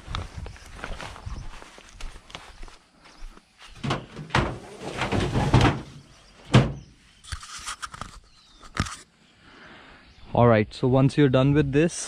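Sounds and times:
trunk lid banging shut: 3.8s - 7.0s.

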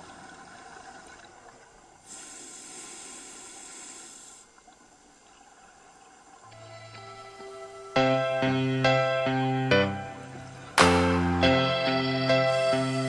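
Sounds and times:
underwater hiss and bubbling: 0.0s - 6.5s
bright high hiss: 6.5s - 13.0s.

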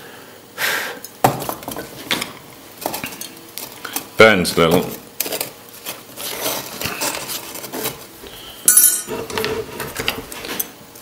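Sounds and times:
metal tool clinking on metal: 8.7s - 9.1s.

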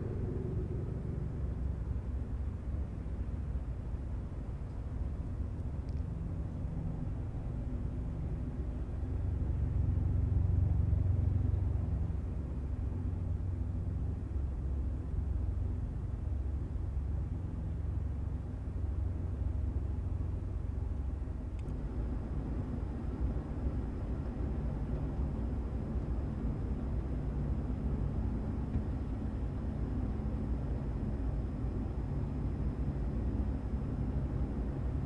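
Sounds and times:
faint high whine: 0.0s - 3.8s
low outdoor rumble: 0.0s - 35.0s.

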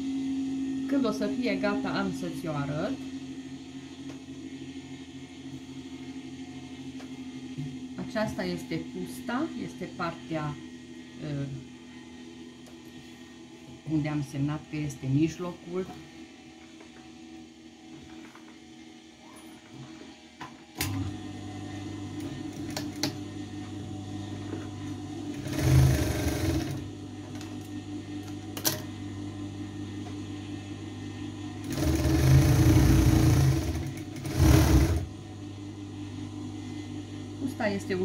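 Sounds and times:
steady motor hum: 0.0s - 38.0s
sewing machine stitching: 25.4s - 26.9s, 31.6s - 35.1s.

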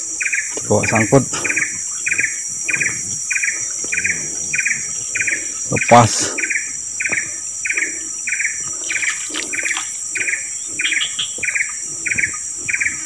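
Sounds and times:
buzzy insect chirp: 0.0s - 13.0s
insects high-pitched drone: 0.0s - 13.0s.

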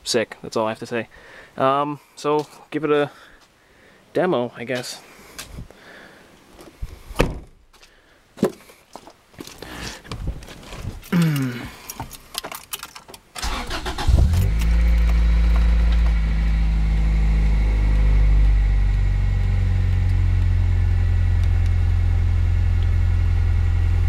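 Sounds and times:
car engine starting and idling: 13.4s - 24.0s.

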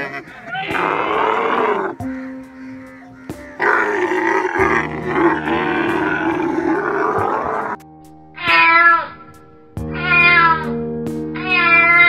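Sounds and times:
camel grunting: 0.0s - 2.1s, 3.6s - 7.8s
background music with held notes: 0.0s - 12.0s.

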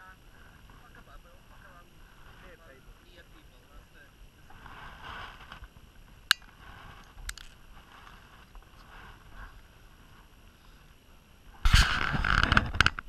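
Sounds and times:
wind rumble on microphone: 0.0s - 13.0s
camera handling scraping rustle: 4.5s - 5.7s, 6.3s - 9.5s, 11.6s - 13.0s.

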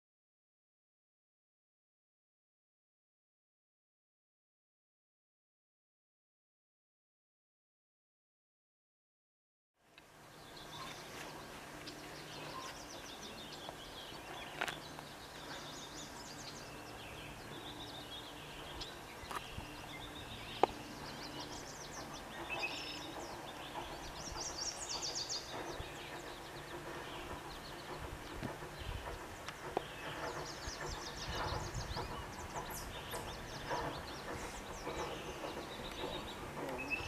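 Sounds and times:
songbirds chirping and trilling: 9.9s - 37.0s.

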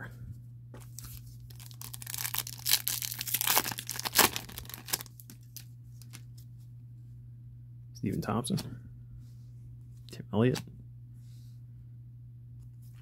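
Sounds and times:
wrapper tearing and crinkling: 0.9s - 6.2s
low hum: 10.7s - 13.0s.

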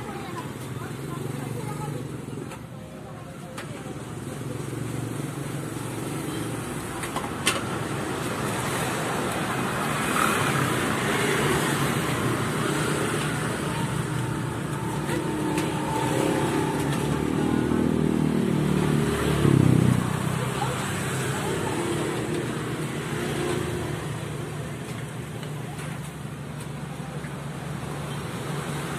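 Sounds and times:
road traffic passing: 0.0s - 28.9s.

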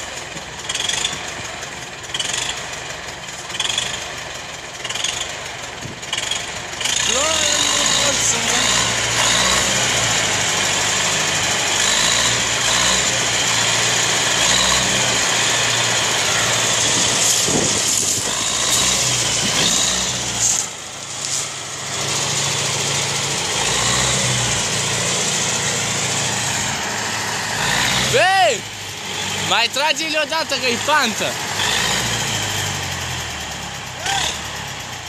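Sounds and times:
diesel tractor engine under load: 0.0s - 35.0s.

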